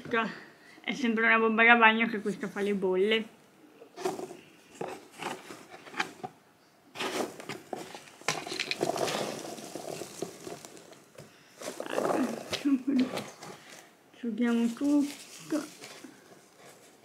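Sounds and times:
cardboard box rustling and scraping: 0:04.0 - 0:13.8, 0:14.5 - 0:17.0.

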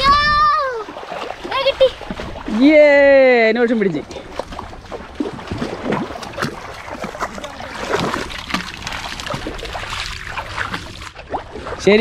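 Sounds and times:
feet sloshing in shallow water: 0:00.0 - 0:12.0.

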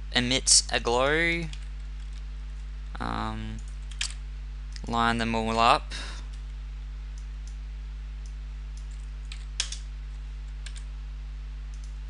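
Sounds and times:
low electrical hum: 0:00.0 - 0:12.0
keyboard and mouse clicks: 0:08.2 - 0:09.8.

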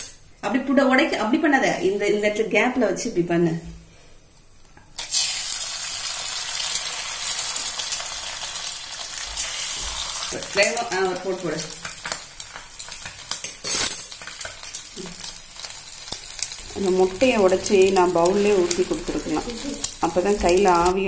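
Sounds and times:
egg sizzling in hot oil: 0:05.0 - 0:21.0.

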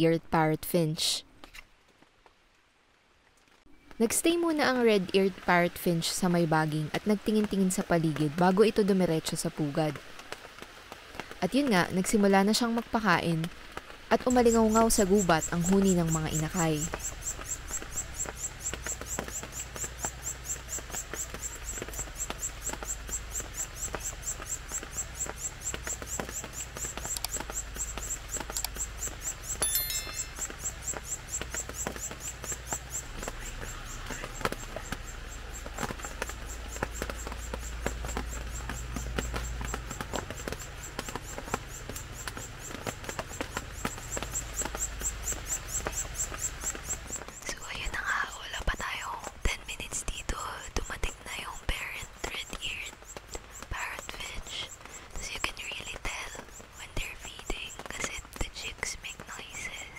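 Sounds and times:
sharp ticks: 0:20.8 - 0:48.0.

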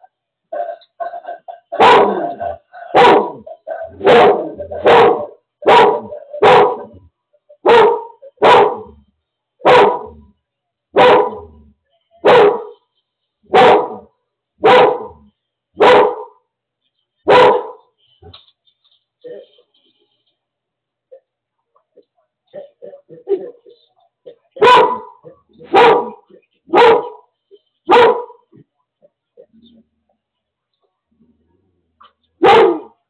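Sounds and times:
dog barking: 0:00.6 - 0:09.0, 0:09.6 - 0:10.3, 0:10.9 - 0:11.6, 0:12.2 - 0:12.8, 0:13.5 - 0:16.4, 0:17.2 - 0:17.9, 0:24.5 - 0:27.3, 0:27.9 - 0:28.6, 0:32.0 - 0:33.0.

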